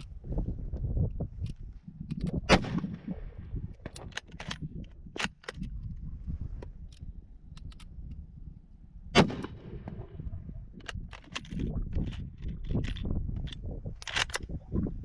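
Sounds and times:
rifle shot with echo: 2.5s - 3.1s, 9.1s - 10.1s
rifle bolt metallic clicks: 3.8s - 5.9s, 6.6s - 8.2s, 10.8s - 14.5s.

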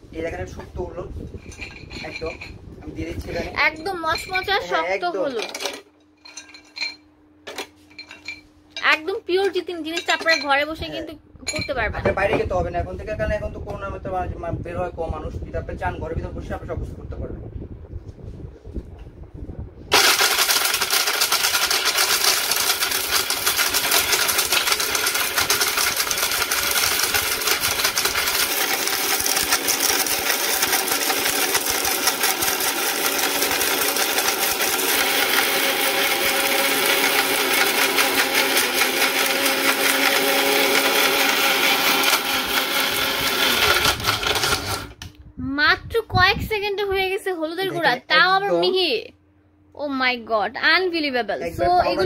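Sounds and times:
mixer grinder grinding: 1.3s - 7.0s, 19.9s - 45.1s.

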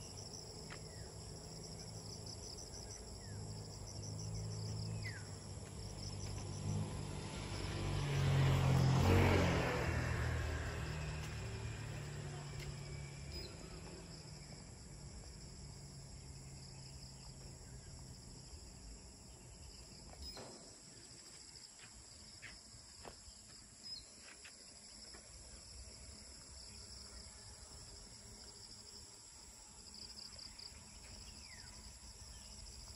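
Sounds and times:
shrill insect chorus: 0.0s - 22.4s, 23.3s - 32.9s
vehicle engine hum: 0.0s - 23.6s.

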